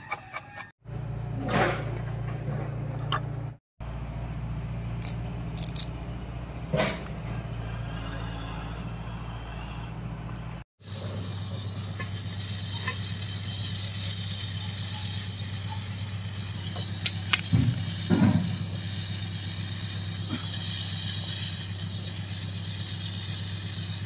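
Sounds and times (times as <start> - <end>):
gas stove burning with hiss: 10.8 - 24.0
leaves sizzling in hot oil: 10.9 - 24.0.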